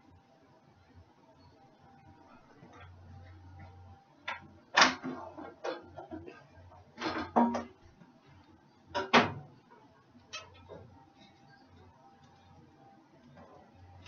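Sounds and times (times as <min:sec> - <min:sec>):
sharp knocks and clatters: 0:07.0 - 0:07.8.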